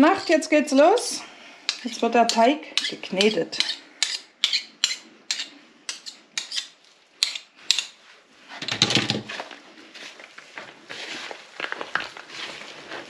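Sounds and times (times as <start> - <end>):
dough squelching while kneaded: 9.2 - 13.0.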